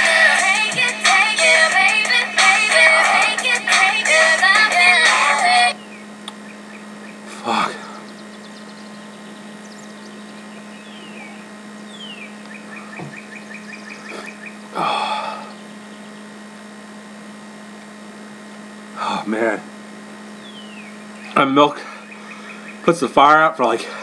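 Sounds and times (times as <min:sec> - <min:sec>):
electrical hum: 0:00.0 - 0:24.0
man sighing loudly: 0:14.8 - 0:15.5.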